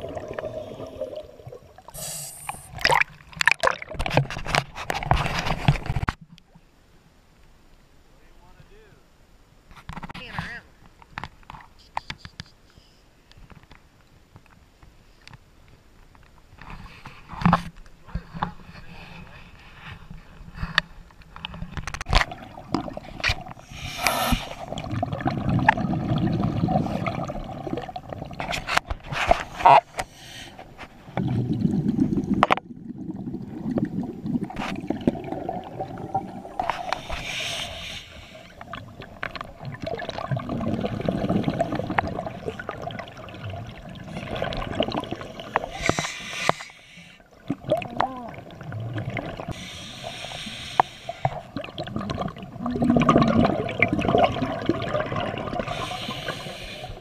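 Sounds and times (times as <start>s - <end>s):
gurgling exhaled bubbles: 0.0s - 4.2s, 22.1s - 28.7s, 31.1s - 46.5s, 47.3s - 50.2s, 51.2s - 57.0s
hissing regulator inhales: 1.9s - 2.7s, 23.6s - 24.7s, 36.7s - 38.6s, 45.7s - 47.2s, 49.5s - 51.5s, 55.6s - 57.0s.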